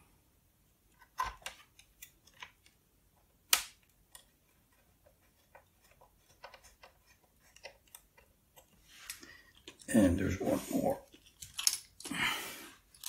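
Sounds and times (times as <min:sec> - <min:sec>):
small clicks and taps of screws: 0:03.5 - 0:09.9.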